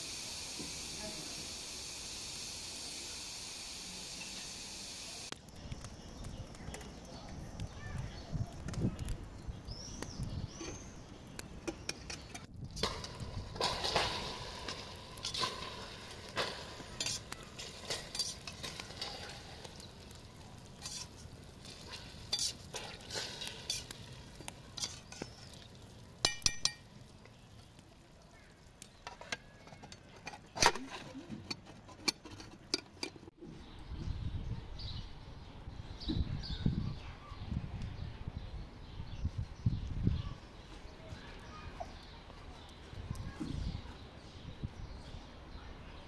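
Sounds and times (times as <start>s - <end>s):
metal spoon scraping a pot: 17.0s - 19.5s, 20.8s - 25.6s, 29.0s - 33.3s.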